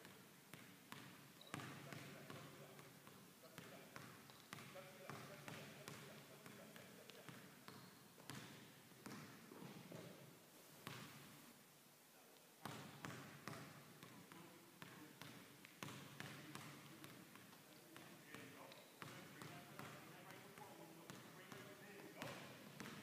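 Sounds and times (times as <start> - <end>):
basketball bouncing on hardwood: 7.3 - 10.1, 10.8 - 11.2, 12.6 - 14.2, 15.2 - 17.5, 22.2 - 23.0.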